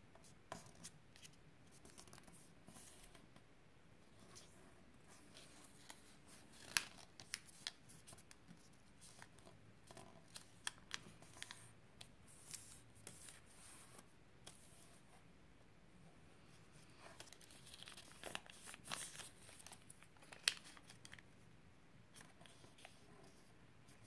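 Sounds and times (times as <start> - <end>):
paper crackling and tapping: 6.6 - 11.6, 17.1 - 21.2
paper rustling: 16.9 - 21.2.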